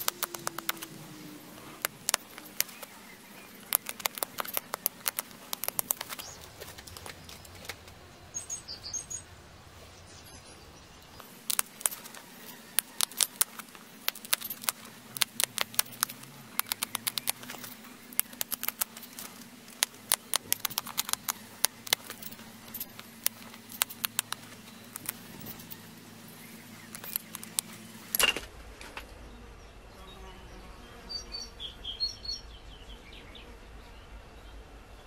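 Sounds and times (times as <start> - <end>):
stone flaking clicks: 0.0 - 8.0, 11.2 - 25.9, 26.7 - 28.4.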